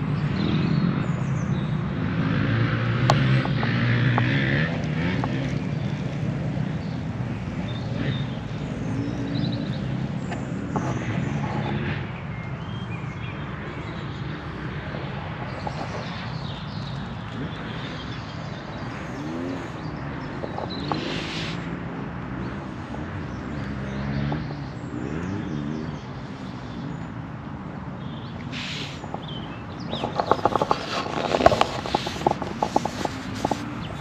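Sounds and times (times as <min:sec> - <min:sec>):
bird chirps: 0:15.5 - 0:21.8.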